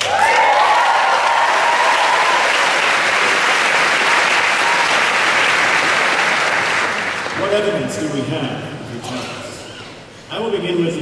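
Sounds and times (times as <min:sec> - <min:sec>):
audience cheering: 0:00.0 - 0:07.4
audience applauding: 0:00.0 - 0:07.7.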